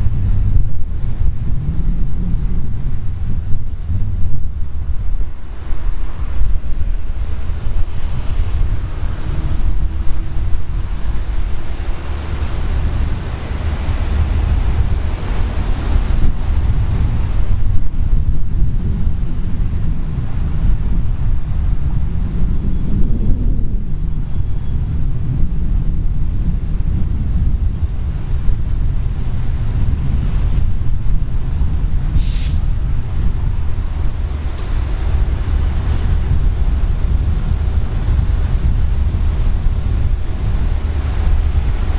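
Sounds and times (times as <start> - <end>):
diesel locomotive idling rumble: 0.0 - 41.9
locomotive idling: 31.5 - 41.9
short high hiss: 32.1 - 32.8.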